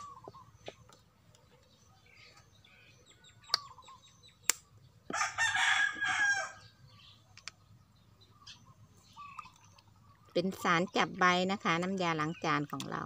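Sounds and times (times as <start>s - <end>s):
rooster crowing: 5.1s - 6.7s.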